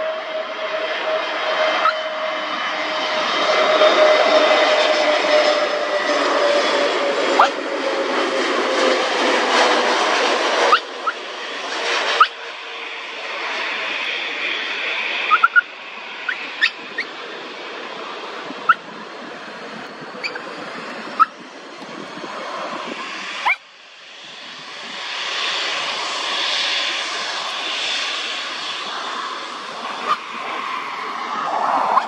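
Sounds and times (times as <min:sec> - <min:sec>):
airliner jet noise: 0:00.0 - 0:32.0
taxiing jet engine: 0:00.0 - 0:32.0
dog whining: 0:01.8 - 0:02.0, 0:07.4 - 0:07.6, 0:10.7 - 0:11.2, 0:15.3 - 0:15.6, 0:20.2 - 0:20.4, 0:30.0 - 0:30.2
wind on microphone: 0:16.3 - 0:26.3, 0:27.0 - 0:32.0.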